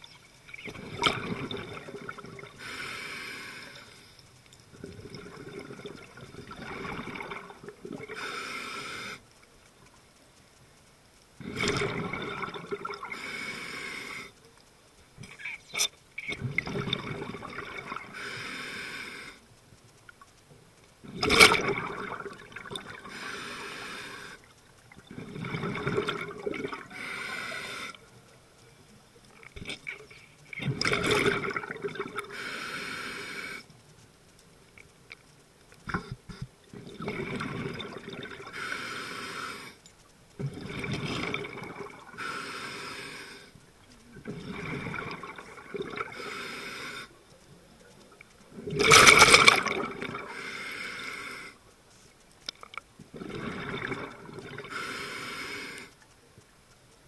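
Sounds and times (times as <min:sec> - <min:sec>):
exhaled bubbles rushing: 0:00.5 - 0:02.6, 0:04.8 - 0:08.2, 0:11.4 - 0:13.1, 0:16.2 - 0:18.1, 0:21.0 - 0:23.1, 0:25.0 - 0:26.9, 0:29.6 - 0:32.3, 0:36.7 - 0:38.5, 0:40.4 - 0:42.2, 0:44.2 - 0:46.2, 0:48.6 - 0:50.3, 0:53.1 - 0:54.7
scuba regulator hissing: 0:26.9 - 0:28.0.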